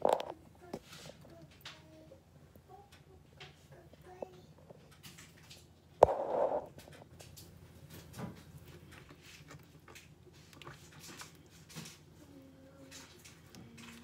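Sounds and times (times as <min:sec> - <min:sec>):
fingers mixing dough in bowl: 0:04.8 - 0:14.0.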